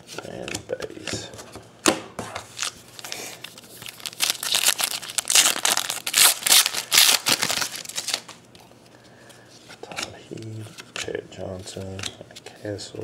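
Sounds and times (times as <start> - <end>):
foil wrapper tearing and crinkling: 2.6 - 8.4.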